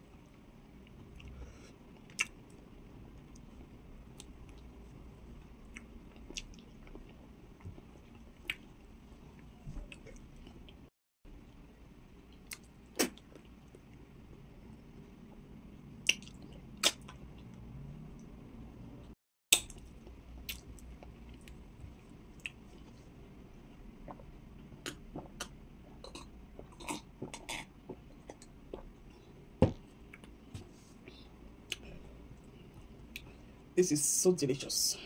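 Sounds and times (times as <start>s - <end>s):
person chewing: 2.0s - 2.4s.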